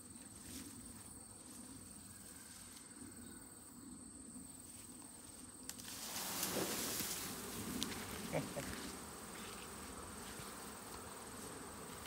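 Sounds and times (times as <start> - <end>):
high insect trill: 0.0 - 12.0
branches and leaves rustling: 4.6 - 12.0
honeybee swarm buzzing: 5.8 - 12.0.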